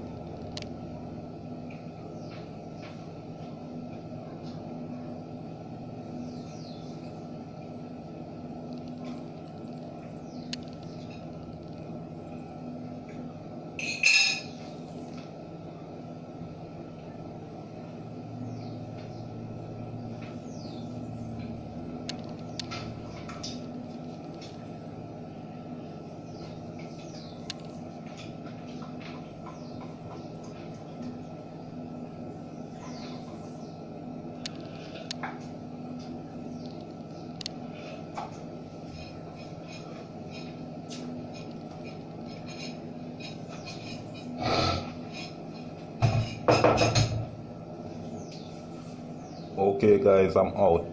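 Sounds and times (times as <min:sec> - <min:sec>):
steady low hum: 0:00.0 - 0:50.9
birds chirping and whistling: 0:06.1 - 0:07.2, 0:10.1 - 0:11.2, 0:18.4 - 0:21.5, 0:26.1 - 0:27.9, 0:28.7 - 0:30.5, 0:32.3 - 0:35.0, 0:42.2 - 0:45.2, 0:47.9 - 0:49.6
cup and plate clinking: 0:13.8 - 0:14.5.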